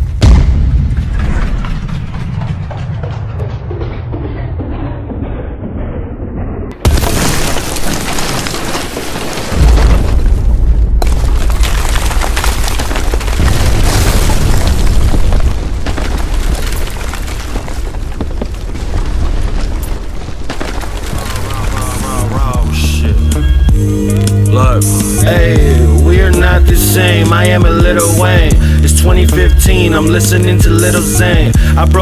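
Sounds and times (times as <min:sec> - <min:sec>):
deep booming rumble: 0:00.0 - 0:07.5, 0:09.5 - 0:32.0
heavy impact: 0:00.0 - 0:08.5
crashing noise: 0:00.0 - 0:23.1
muffled sweeping music: 0:21.5 - 0:31.6.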